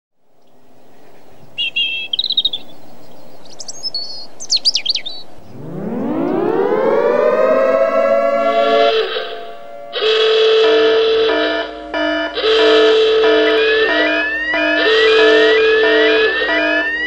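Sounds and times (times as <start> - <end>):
birds chirping: 0.4 - 9.9, 13.3 - 17.0
siren winding up and wailing: 5.5 - 10.6, 12.4 - 17.0.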